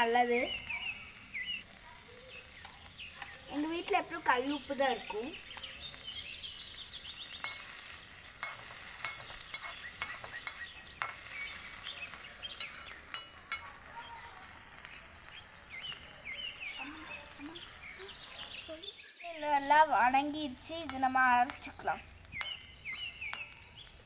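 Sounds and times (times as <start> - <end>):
vegetables sizzling in oil: 0.0 - 24.0
spoon clicking on pan: 7.4 - 13.9.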